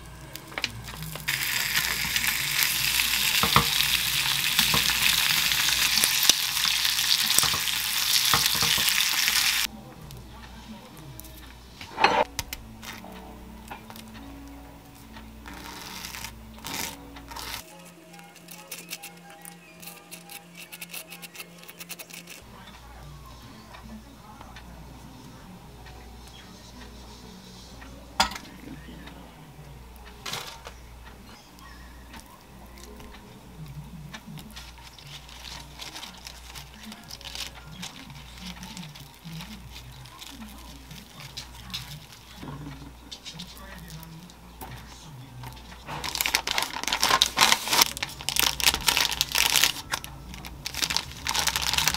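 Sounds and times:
soft background music: 0.0 - 51.9
metal spoon scraping toast: 15.5 - 22.4.

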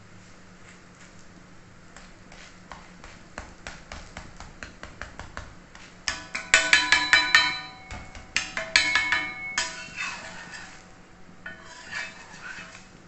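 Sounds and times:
metal spatula tapping on a pan: 3.4 - 10.3.

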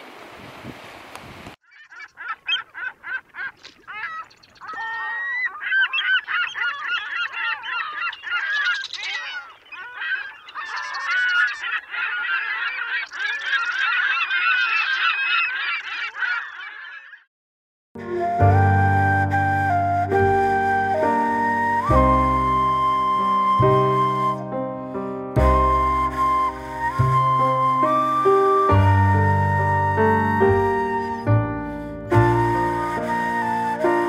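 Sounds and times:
wind: 0.0 - 17.2
gulls calling: 1.6 - 17.3.

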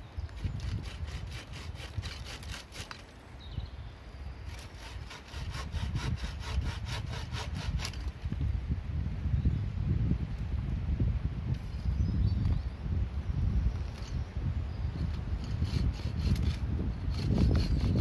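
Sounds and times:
hand saw cutting wood: 0.4 - 3.0, 4.5 - 8.1, 15.0 - 18.0.

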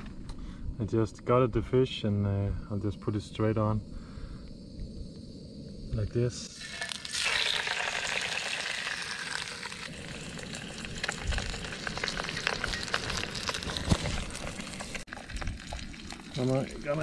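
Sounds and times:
fish sizzling in a pan: 6.4 - 17.0.

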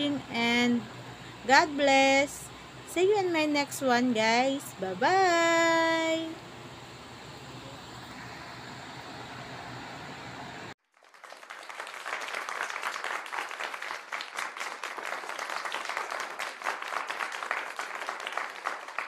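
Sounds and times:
low background hum: 0.0 - 10.8
crowd applauding: 10.8 - 19.0.

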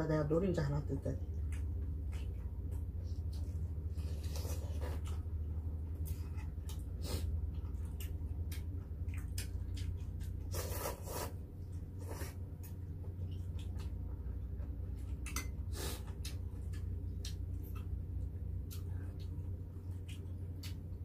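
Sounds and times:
low hum: 0.0 - 21.0
wet chewing and lip smacks: 6.0 - 21.0.

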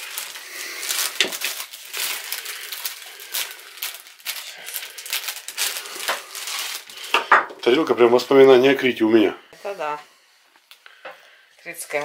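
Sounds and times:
wrapping rustling and crackling: 0.0 - 8.5.

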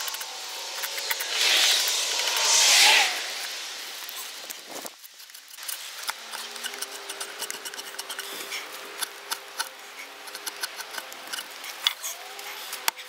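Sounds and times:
drawknife shaving wood: 5.0 - 12.9.

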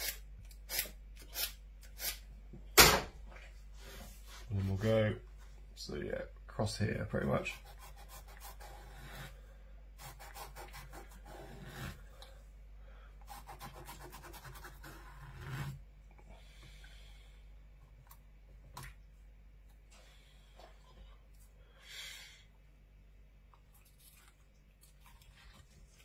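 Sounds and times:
knife rasping on rough fish skin: 7.5 - 9.4, 10.0 - 12.0, 13.3 - 15.8.

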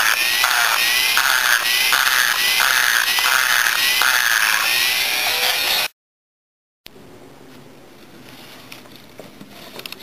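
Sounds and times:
high-speed grinder cutting metal: 0.0 - 5.9.

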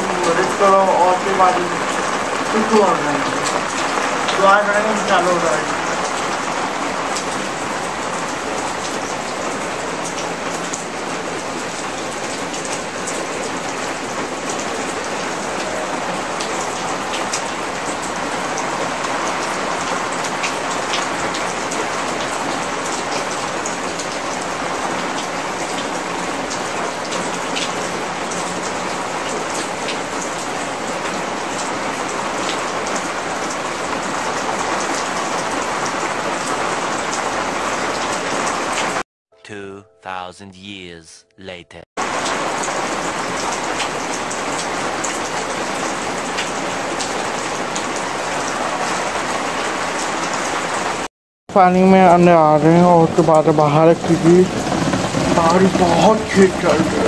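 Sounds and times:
heavy rain on concrete roof: 0.0 - 39.0, 42.0 - 57.0
sharp raindrop taps: 0.0 - 39.0, 53.0 - 57.0.

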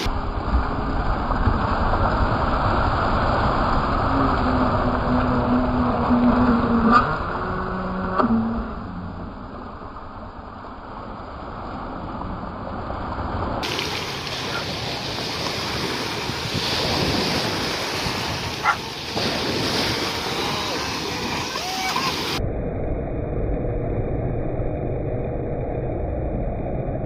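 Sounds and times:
waves breaking on pebbles: 13.5 - 22.4
wind on microphone: 13.5 - 22.4.

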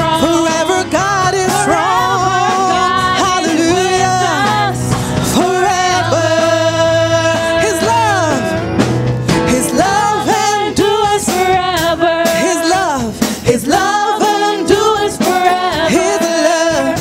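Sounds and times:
gospel worship band: 0.0 - 17.0
voices singing held notes: 0.0 - 17.0.

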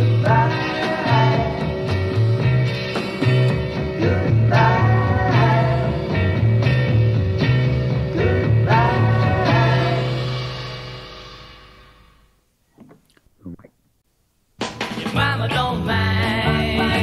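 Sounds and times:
person singing: 0.0 - 1.7, 4.0 - 6.0, 8.2 - 10.2, 15.0 - 17.0
rock band playing: 0.0 - 11.7.

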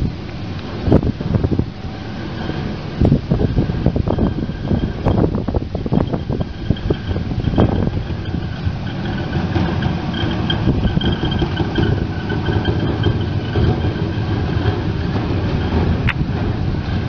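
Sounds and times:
floor sweeper brushing pavers: 0.0 - 17.0.

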